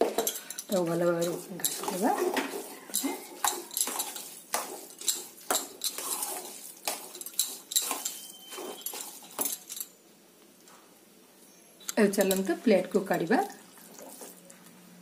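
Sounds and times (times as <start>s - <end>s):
spoon clinking against steel bowl: 0.1s - 9.9s.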